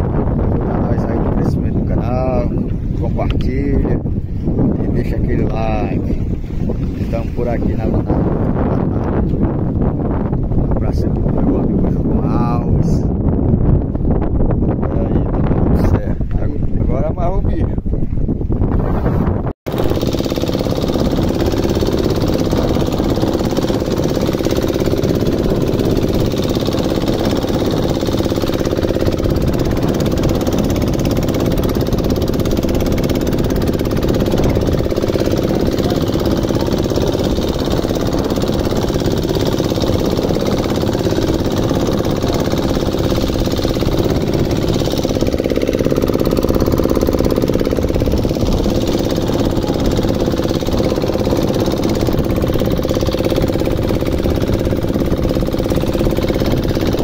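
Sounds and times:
boat engine droning: 0:00.0 - 0:13.0, 0:19.7 - 0:57.0.

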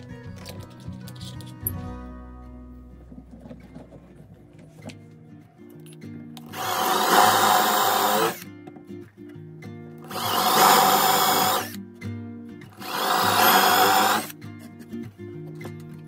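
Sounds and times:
power drill boring into wood: 0:06.5 - 0:08.5, 0:10.1 - 0:11.8, 0:12.8 - 0:14.3.

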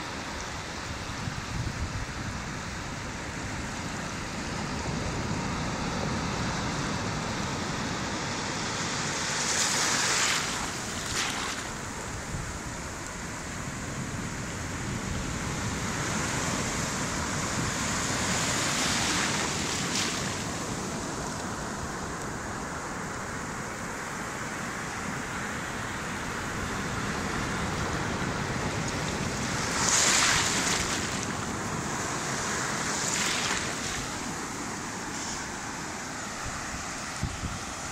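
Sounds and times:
sea waves breaking on sand: 0:02.4 - 0:37.9.

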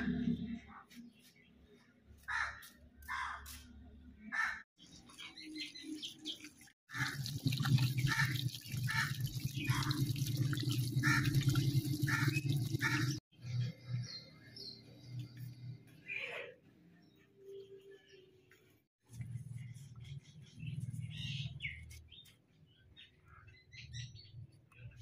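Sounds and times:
crows cawing: 0:02.3 - 0:03.5, 0:11.0 - 0:13.2.

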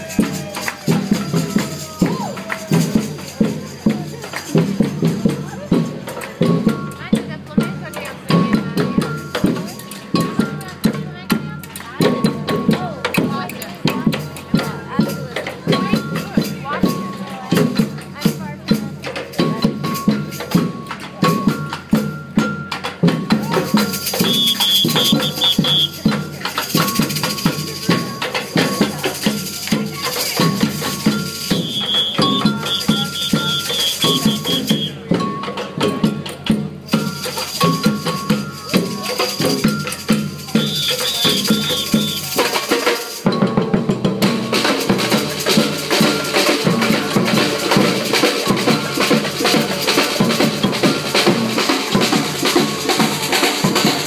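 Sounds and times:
bass drums: 0:00.0 - 0:42.7
shakers: 0:00.0 - 0:54.0
snare drums: 0:00.0 - 0:54.0.

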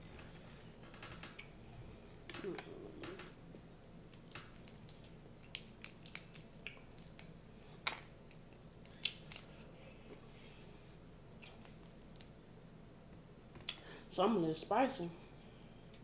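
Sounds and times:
crab shells cracking: 0:03.9 - 0:07.4, 0:08.7 - 0:09.6.

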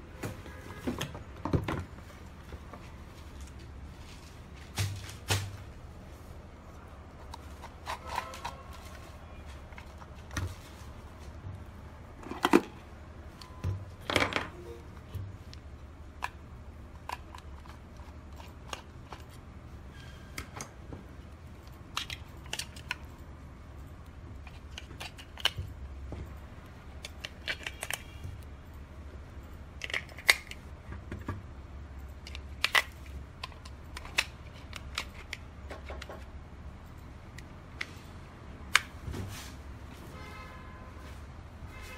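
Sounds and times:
batteries clicking into plastic holder: 0:27.0 - 0:28.3, 0:32.2 - 0:36.3.

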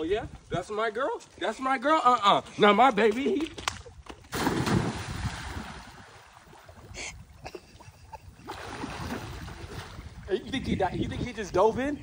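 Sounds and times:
person diving into pool splash: 0:04.3 - 0:06.5
swimming splashes: 0:04.3 - 0:07.0
water churning: 0:04.3 - 0:10.2.

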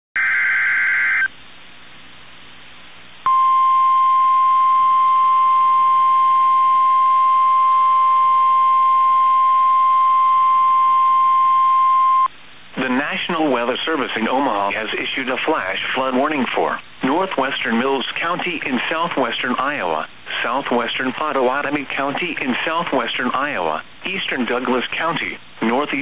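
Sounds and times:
steady single-pitch alarm tone: 0:00.2 - 0:01.3, 0:03.3 - 0:12.3
radio hiss: 0:12.6 - 0:26.0.

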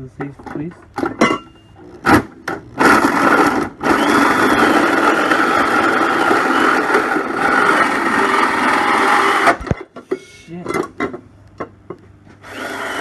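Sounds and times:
drill hole saw cutting metal: 0:02.8 - 0:09.6, 0:12.4 - 0:13.0.

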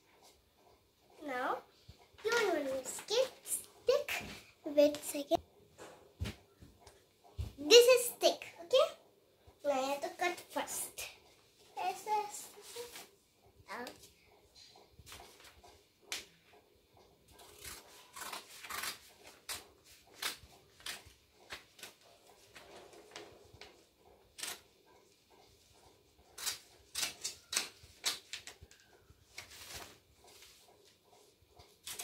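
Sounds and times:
scissors snipping paper: 0:17.4 - 0:22.6, 0:24.3 - 0:24.6, 0:26.4 - 0:29.9, 0:31.8 - 0:32.0
paper rustling: 0:27.0 - 0:30.6.

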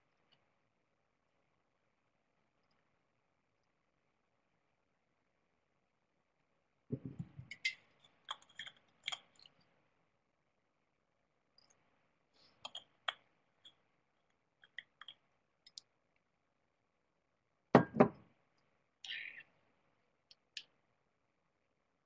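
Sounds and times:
small clicks and taps: 0:12.6 - 0:16.3.

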